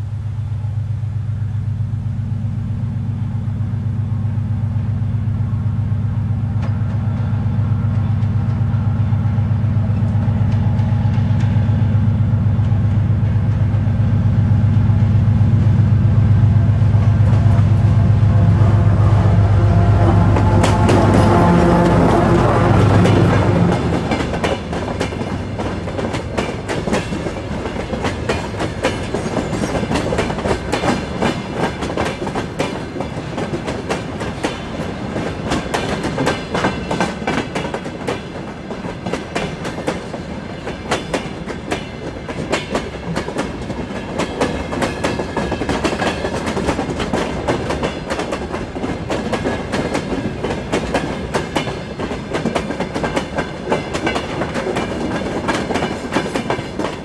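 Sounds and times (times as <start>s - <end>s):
train wheels clattering over rail joints: 20.4s - 57.0s.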